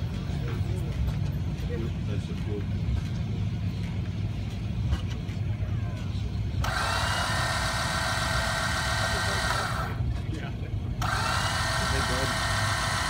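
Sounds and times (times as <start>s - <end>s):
low engine rumble: 0.0s - 13.0s.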